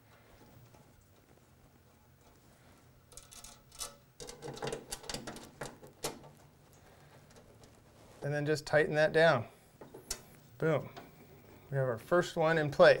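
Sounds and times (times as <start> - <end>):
faint low hum: 0.0 - 13.0
metal line clicking and rattling: 3.1 - 7.8.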